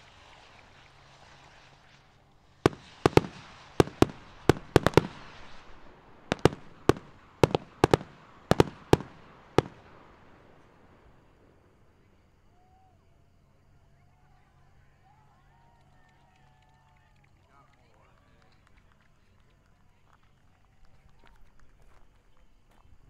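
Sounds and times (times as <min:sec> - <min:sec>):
fireworks hiss: 0:00.0 - 0:12.1
fireworks bursting: 0:00.0 - 0:12.3.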